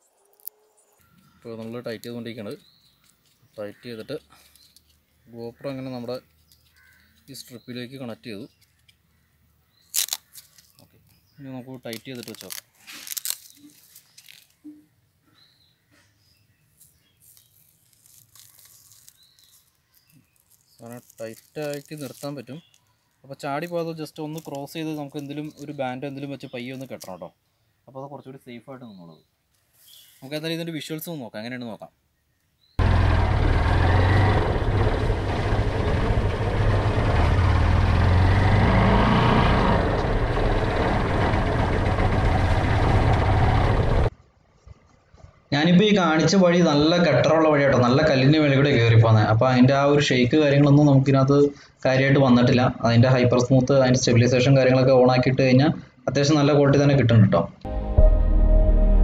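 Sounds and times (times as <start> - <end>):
plastic camera frame clicks and rustles: 11.8 - 14.6
faint bird chirps: 25.4 - 30.4
motorcycle engine rumble: 32.8 - 45.5
wind and road noise: 32.8 - 45.5.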